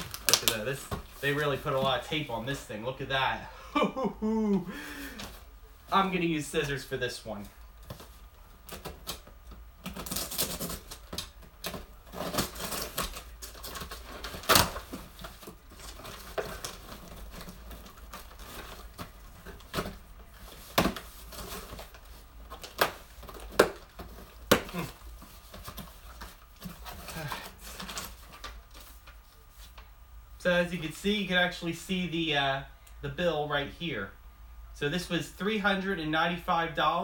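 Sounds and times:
tape tearing: 0.0 - 2.0, 7.8 - 29.1
cardboard crinkling: 0.0 - 3.4, 4.7 - 29.9.

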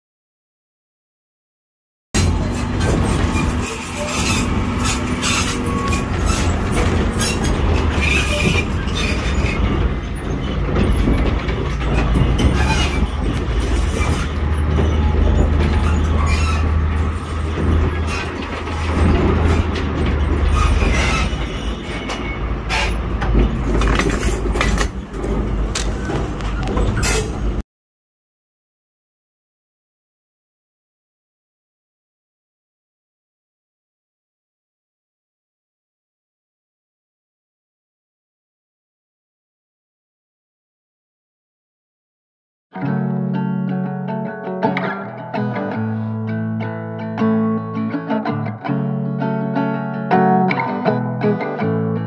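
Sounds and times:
locomotive engine droning: 2.2 - 27.6
wheels clanking on rail joints: 2.2 - 27.6.

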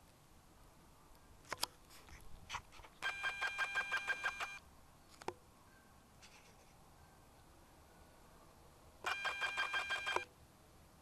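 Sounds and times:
sharp clicks: 9.0 - 10.3
fast pulsing electronic beep: 9.1 - 10.2.

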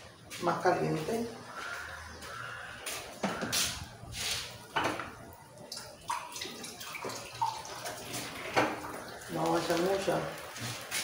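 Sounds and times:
batter sizzling in hot oil: 8.0 - 11.0.

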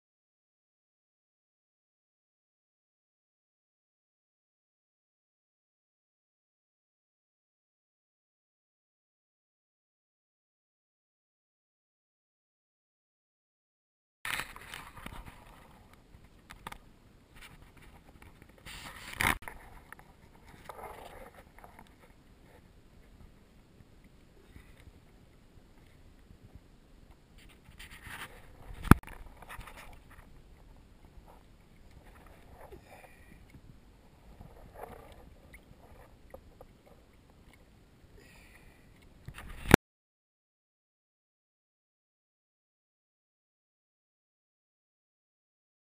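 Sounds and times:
rustling scrape: 14.3 - 15.9, 17.4 - 22.7, 27.4 - 33.5, 34.1 - 37.1.

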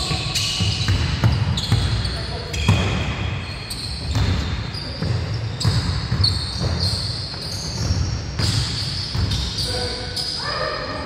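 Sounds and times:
sneakers squeaking: 0.0 - 11.0
basketball bouncing on hardwood: 0.6 - 2.0.

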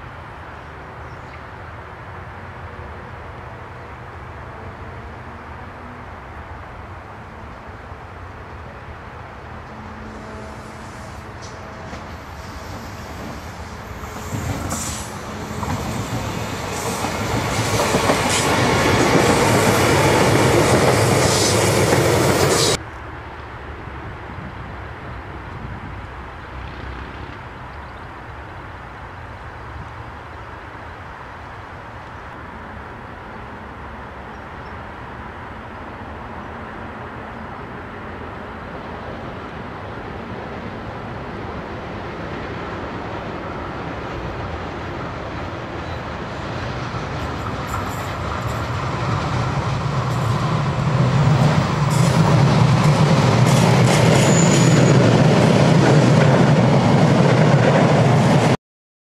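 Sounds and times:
electric train passing: 0.0 - 58.6
sharp clicks of train wheels: 11.4 - 22.8, 46.7 - 58.6
high wheel squeal: 54.0 - 55.1.

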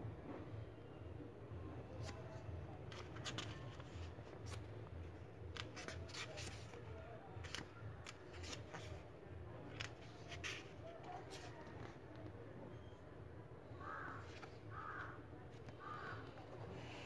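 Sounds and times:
book pages flipping: 2.0 - 12.3, 13.9 - 17.0.

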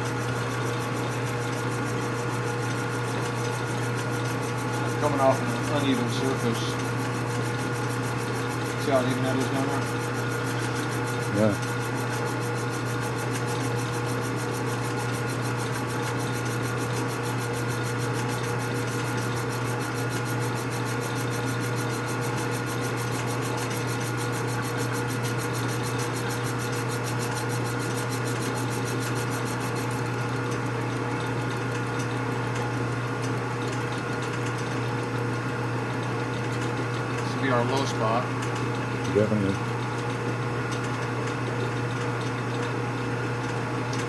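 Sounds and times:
machine tool humming: 0.0 - 30.1
high even buzz: 4.7 - 30.0.

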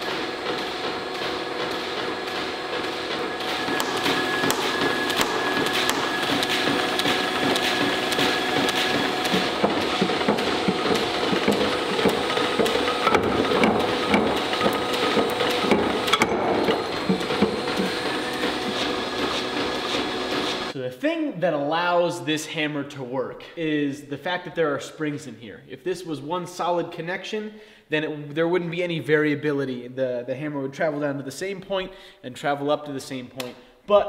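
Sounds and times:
power hammer ram clattering: 0.0 - 20.7
power hammer drive whine: 0.0 - 20.8
sharp knocks: 0.6 - 19.4.

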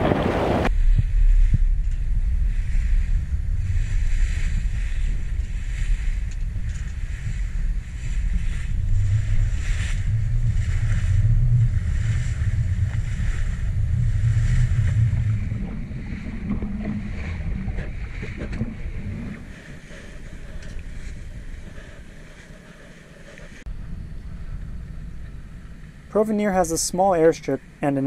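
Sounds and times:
wind buffeting microphone: 0.0 - 27.8
waves splashing along hull: 0.0 - 28.0.

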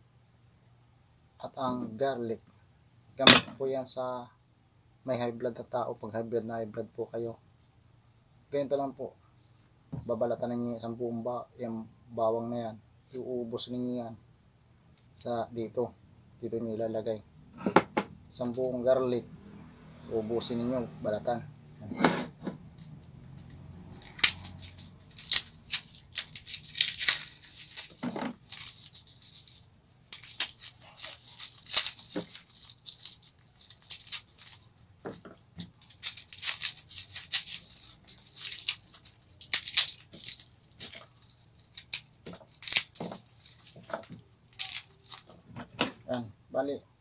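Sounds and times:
garlic skins crackling and tearing: 22.8 - 45.5.

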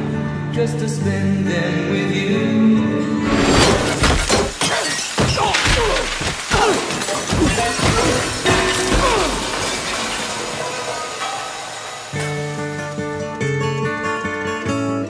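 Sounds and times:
soft music: 0.0 - 3.4
crashes and shattering: 3.2 - 13.5.

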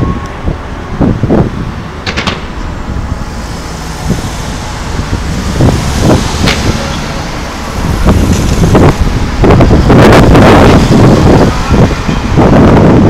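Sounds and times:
low rumble: 0.0 - 13.0
fireworks booming: 2.0 - 9.6.

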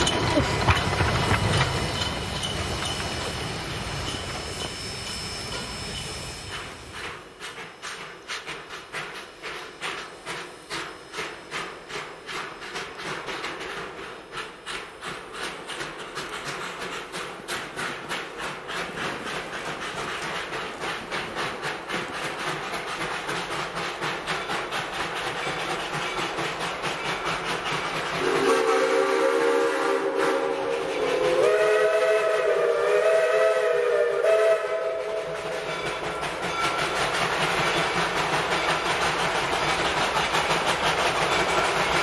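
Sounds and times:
steam hissing: 0.0 - 42.0
steam locomotive chuffing: 0.0 - 42.0.

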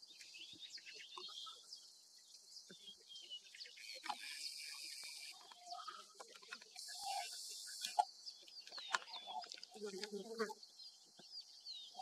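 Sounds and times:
bird chirps: 0.0 - 9.9, 10.6 - 12.0
high insect hiss: 6.7 - 8.3.

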